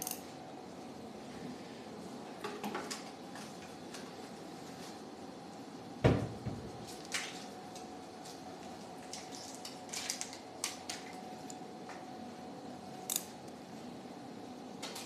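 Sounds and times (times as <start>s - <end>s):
metal instruments clicking and clinking: 0.0s - 0.2s.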